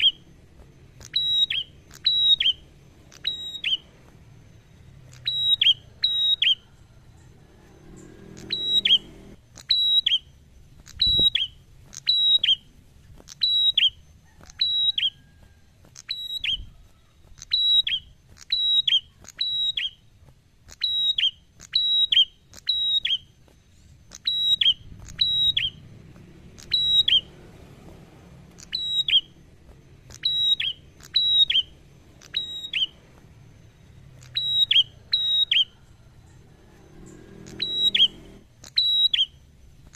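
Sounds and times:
bird calling high double notes: 0.0s - 12.7s, 24.0s - 27.4s, 28.4s - 39.5s.

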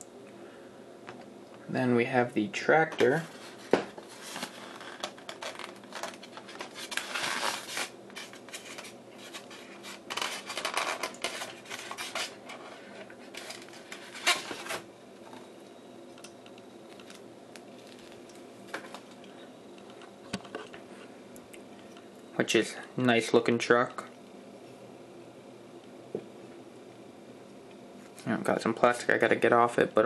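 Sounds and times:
styrofoam rubbing and scraping: 3.2s - 14.8s.

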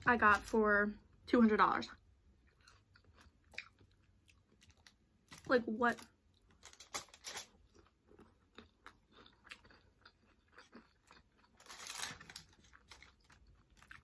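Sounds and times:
person chewing crunchy chips: 2.3s - 5.5s, 6.3s - 14.0s.

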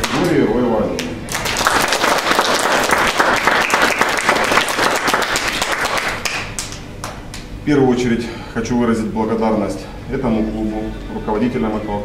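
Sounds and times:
people applauding: 1.0s - 7.4s.

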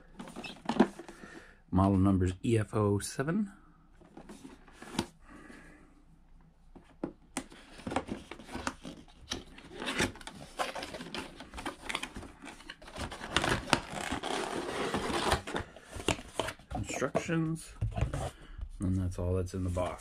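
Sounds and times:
cardboard and packaging rustling: 0.0s - 1.4s, 4.0s - 5.2s, 6.7s - 18.4s.

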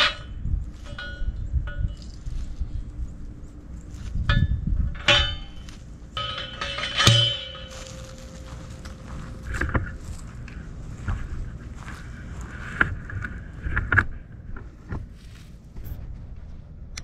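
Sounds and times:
metal fencing clanking: 0.0s - 2.4s, 4.2s - 10.7s
wind rumbling on microphone: 0.0s - 6.0s, 7.9s - 17.0s
sharp metallic strikes ringing: 5.0s - 10.4s.

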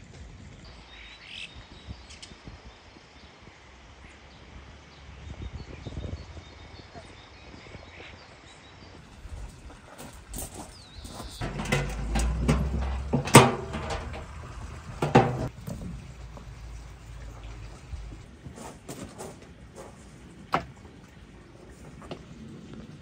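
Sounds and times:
metal baking tray clattering: 11.4s - 15.5s
sharp metallic knocks: 11.4s - 15.5s
tray knocking on wooden table: 15.0s - 15.5s.

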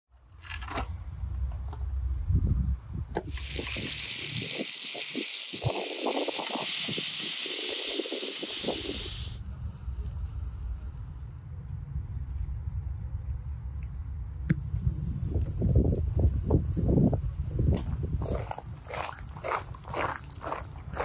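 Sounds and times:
food sizzling in hot oil: 3.2s - 9.4s
low rumble: 9.4s - 19.9s.

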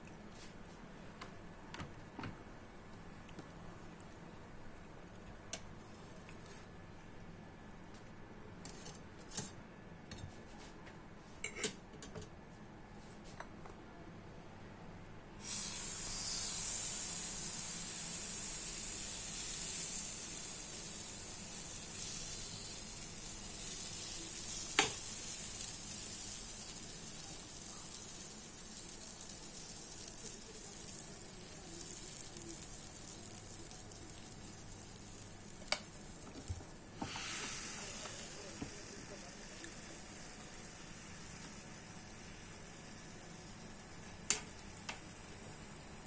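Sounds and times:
batter sizzling: 15.4s - 46.0s.

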